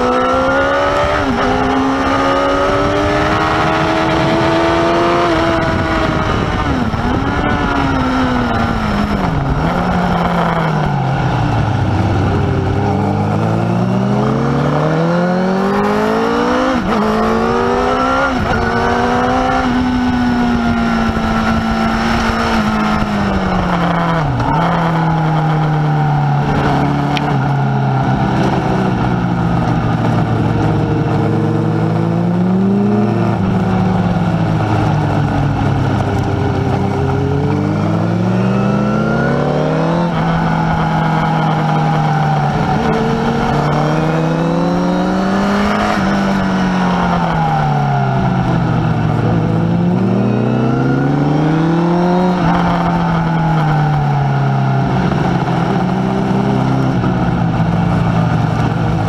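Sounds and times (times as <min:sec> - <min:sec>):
motorcycle engine revving: 0:00.0 - 0:59.0
wind rush: 0:00.0 - 0:59.0.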